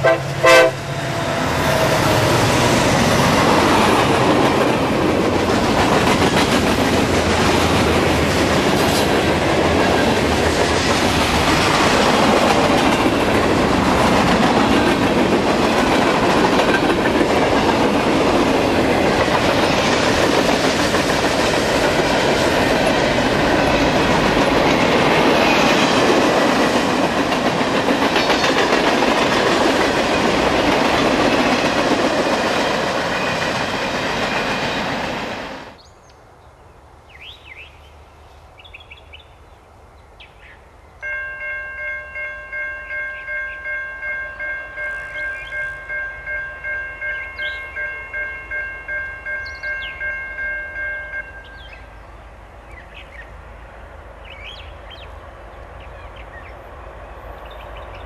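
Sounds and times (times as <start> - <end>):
steel wheels rolling on rail: 0.0 - 35.8
wheels clacking over rail joints: 0.9 - 35.5.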